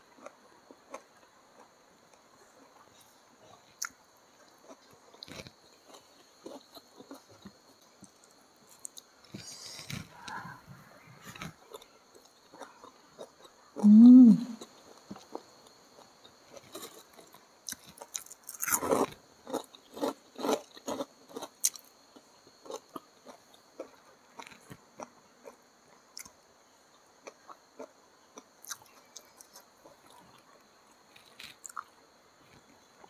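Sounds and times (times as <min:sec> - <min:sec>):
close crunchy chewing: 0:00.1 - 0:10.6, 0:11.2 - 0:26.4, 0:27.0 - 0:33.0
mouth clicks: 0:13.8 - 0:14.7.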